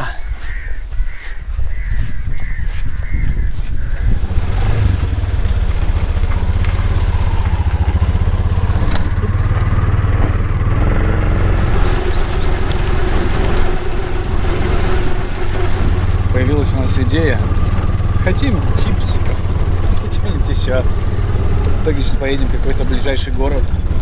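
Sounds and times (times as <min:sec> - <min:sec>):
auto-rickshaw engine running: 0:03.9 - 0:24.0
bird chirps: 0:11.1 - 0:13.0.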